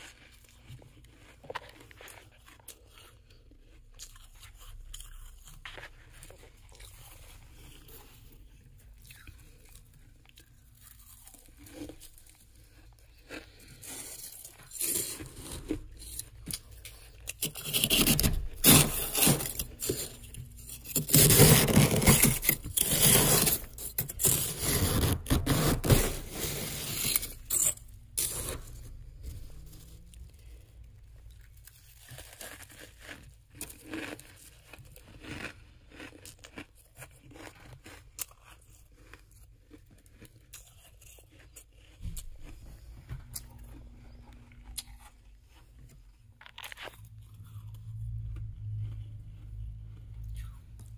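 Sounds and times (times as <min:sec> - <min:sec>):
fingers scraping and crunching frost: 0:00.0 - 0:47.8.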